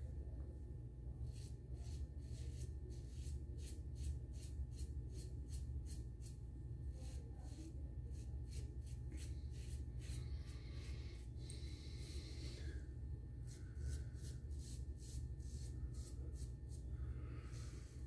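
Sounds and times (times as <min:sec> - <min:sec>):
razor scraping through stubble: 0:08.1 - 0:10.9, 0:13.4 - 0:16.9.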